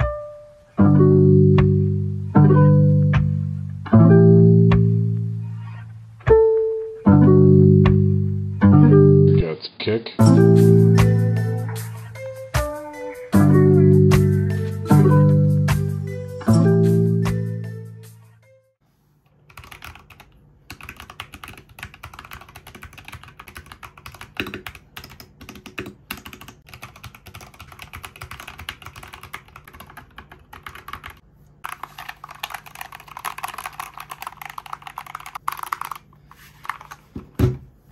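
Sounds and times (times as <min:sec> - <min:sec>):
mechanical keyboard typing: 0:19.5 - 0:37.0.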